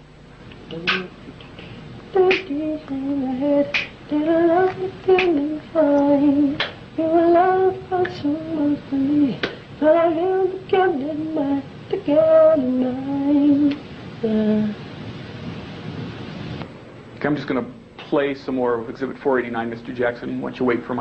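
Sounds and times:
man singing wordless syllables: 2.1s - 14.8s.

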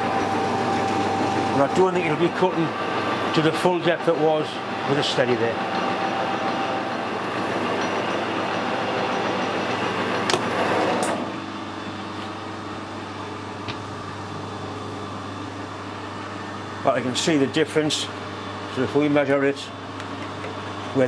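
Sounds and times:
lathe tool cutting steel: 0.0s - 11.3s
metal lathe running: 0.0s - 15.2s.

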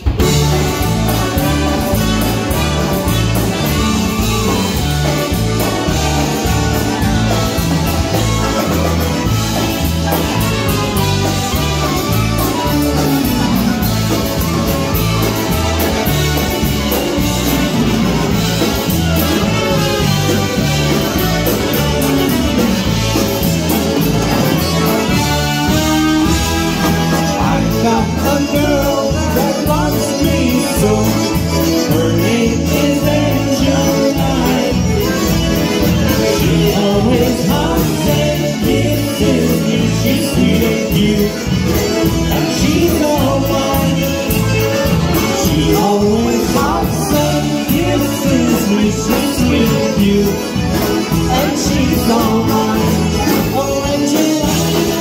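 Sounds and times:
polka band playing: 0.0s - 55.0s
men singing: 24.6s - 55.0s.

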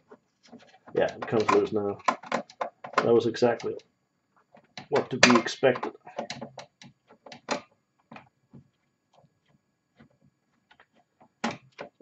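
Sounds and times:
light clicks and taps of parts: 0.4s - 3.9s.

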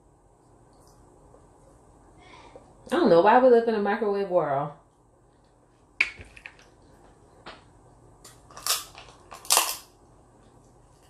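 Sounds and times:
crab shell cracking: 8.2s - 10.0s.

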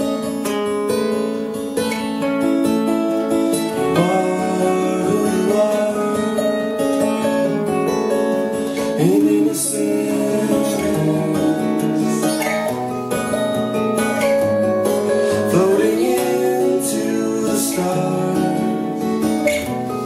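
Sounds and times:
acoustic guitars strummed and picked: 0.0s - 20.0s
person singing: 3.7s - 12.8s, 15.0s - 20.0s.

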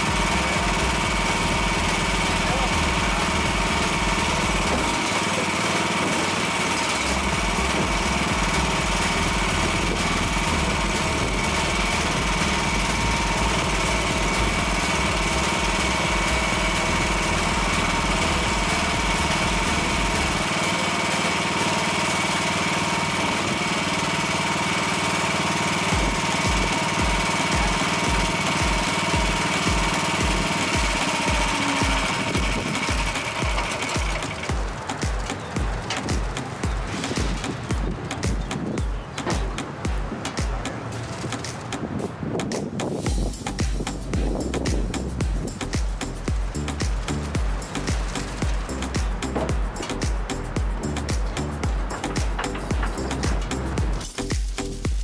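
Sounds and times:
thin steady whine: 0.0s - 37.8s
small engine idling: 0.0s - 42.0s, 42.7s - 55.0s.

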